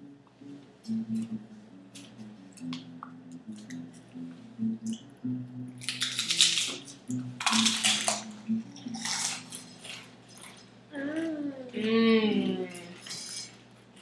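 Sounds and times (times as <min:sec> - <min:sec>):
quiet background music: 0:00.0 - 0:14.0
chips clicking against glass bowl: 0:05.8 - 0:06.8, 0:07.4 - 0:08.2
tortilla chips crunching: 0:05.8 - 0:10.6.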